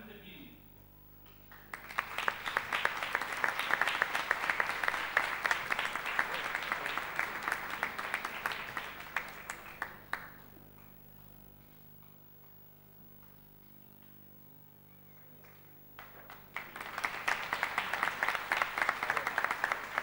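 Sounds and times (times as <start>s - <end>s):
small group applauding: 1.2s - 11.3s, 15.0s - 20.0s.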